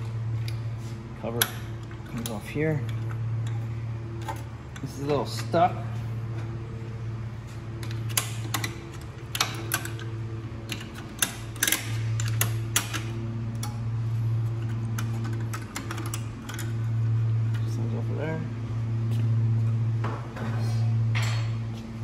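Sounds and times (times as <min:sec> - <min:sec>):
steady low hum: 0:00.0 - 0:22.0
sharp clicks of parts prying off: 0:07.8 - 0:13.8, 0:14.6 - 0:16.8.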